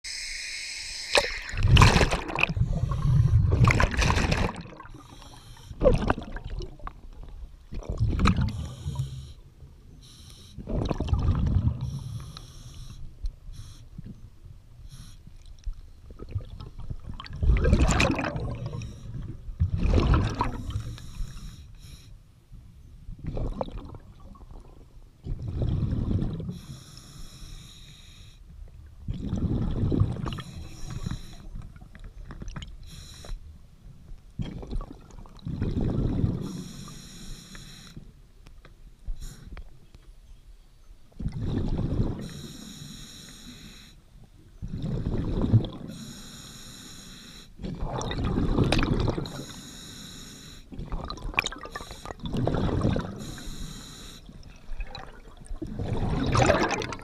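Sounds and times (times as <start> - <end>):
exhaled bubbles rumbling: 1.1 - 9.1, 10.6 - 12.0, 15.5 - 21.1, 23.0 - 26.6, 28.8 - 32.8, 34.4 - 36.6, 41.2 - 42.3, 44.4 - 45.9, 47.6 - 49.4, 50.7 - 53.4, 54.2 - 57.0
hissing regulator inhalations: 4.8 - 5.8, 10.0 - 10.6, 11.8 - 13.9, 20.7 - 22.2, 26.5 - 28.4, 30.3 - 31.6, 32.8 - 33.5, 36.4 - 38.0, 42.2 - 44.0, 45.9 - 47.6, 49.3 - 50.7, 51.6 - 52.2, 53.1 - 54.4.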